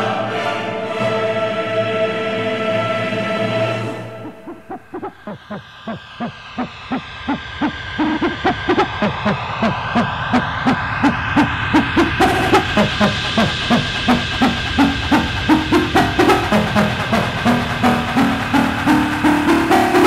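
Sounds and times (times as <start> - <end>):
high sweeping whoosh: 3.8 - 20.0
pulsing electronic note: 4.0 - 20.0.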